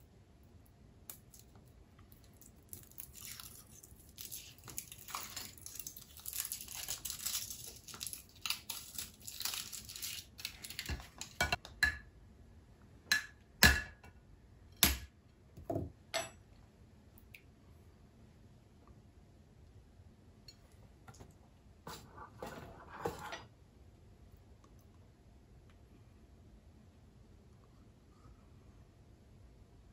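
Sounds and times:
foil wrapper crinkling and tearing: 2.7s - 11.4s.

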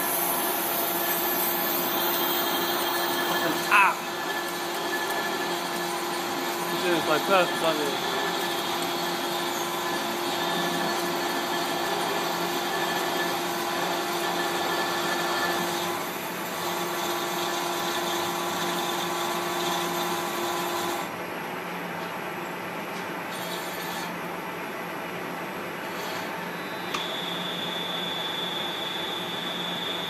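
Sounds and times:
lathe running: 0.0s - 21.0s
steady machining tone: 0.0s - 21.0s, 25.8s - 30.0s.

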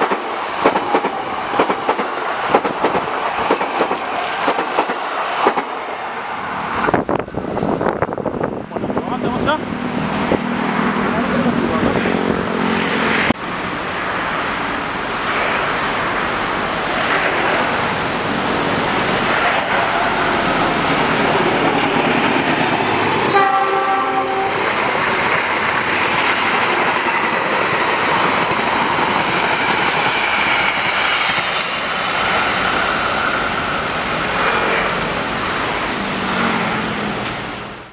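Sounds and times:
train wheels clattering over rails: 0.0s - 6.0s
train horn blast: 23.3s - 24.6s.

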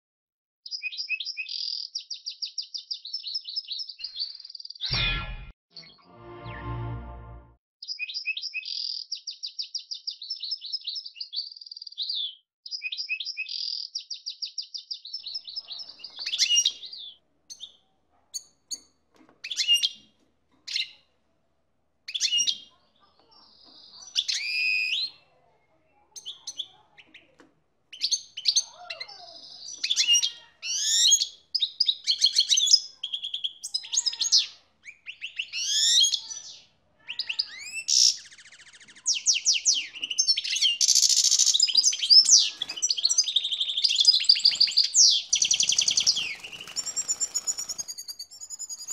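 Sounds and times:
goldfinch trilling and twittering: 37.3s - 48.9s.

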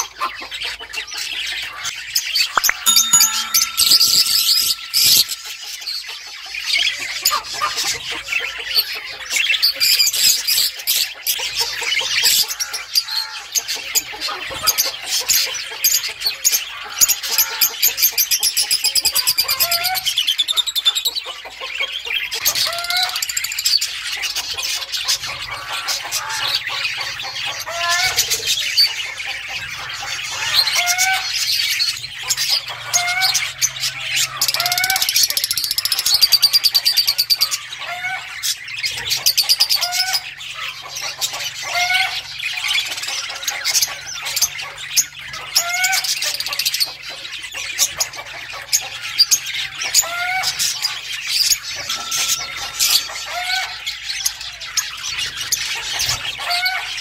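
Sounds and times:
lovebirds chattering: 0.0s - 57.0s.

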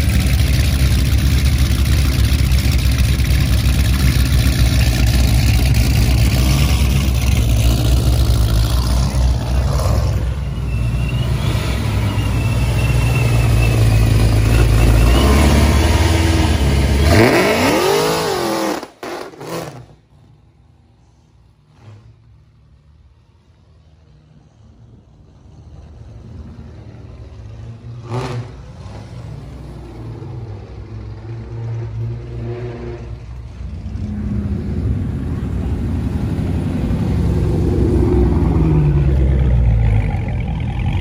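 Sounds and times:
car engine revving: 0.0s - 10.5s, 11.1s - 20.1s.

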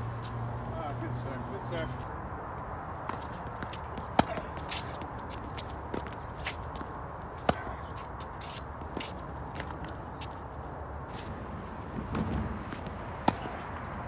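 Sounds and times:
racket hitting tennis ball: 3.1s - 10.3s, 12.0s - 14.0s
shoe scuffs: 3.1s - 10.4s, 11.1s - 11.4s.

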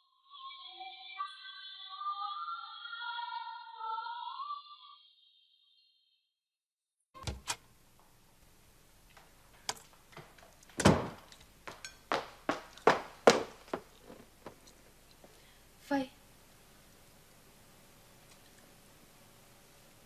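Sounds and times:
footsteps on hard floor: 9.1s - 15.4s
quick knocks: 9.2s - 14.6s.

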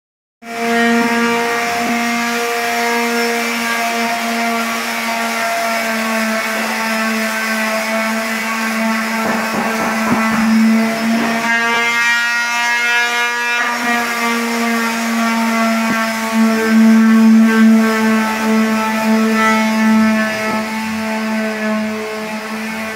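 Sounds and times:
sander pad scraping wall: 0.4s - 22.9s
electric sander motor whine: 0.5s - 22.9s.

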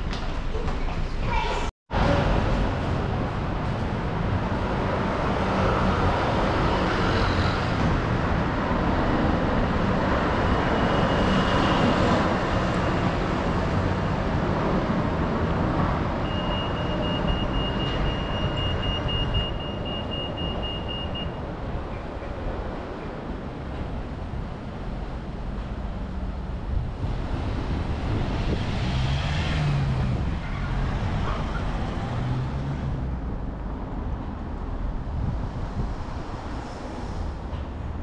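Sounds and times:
passing cars: 1.9s - 38.0s
crossing signal pulsing beep: 16.2s - 21.4s.

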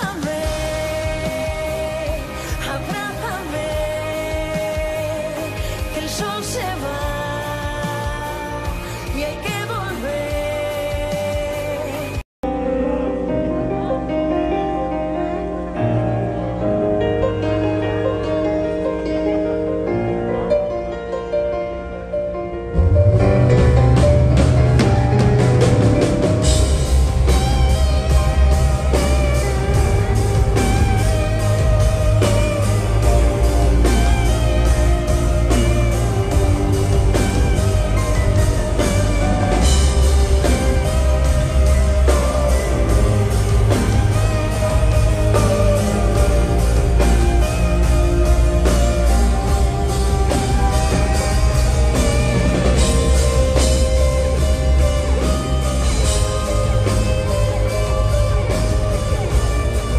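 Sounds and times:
drums: 0.0s - 59.9s
electric guitar: 0.0s - 59.9s
synthesizer: 0.0s - 59.9s
heavy steady bass: 22.8s - 59.9s.

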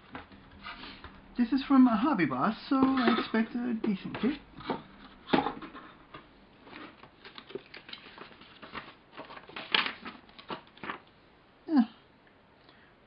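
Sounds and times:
paper and plastic rustling: 6.6s - 11.1s.

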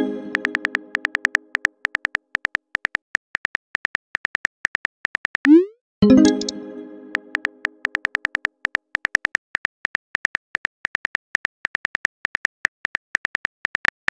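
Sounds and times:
phone keyboard clicks: 0.4s - 5.4s
message chime: 5.5s - 7.4s.

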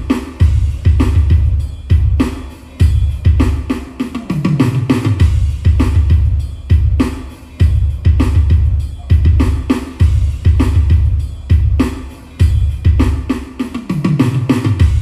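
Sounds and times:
booming kick drum: 0.4s - 2.2s, 5.2s - 7.0s, 7.6s - 13.2s, 14.8s - 15.0s
snare hits: 3.4s - 6.2s.

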